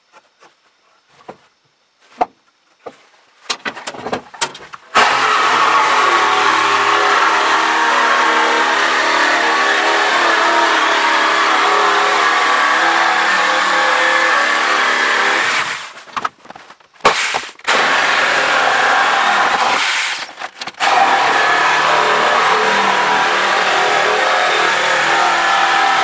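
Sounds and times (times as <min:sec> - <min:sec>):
electric jigsaw cutting wood: 0:04.9 - 0:15.9, 0:17.6 - 0:26.0.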